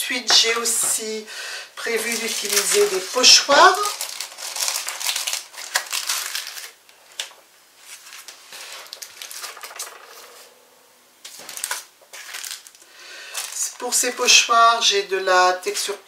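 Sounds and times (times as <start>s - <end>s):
plastic stencils rustling and clicking: 1.8s - 10.6s, 11.2s - 13.8s.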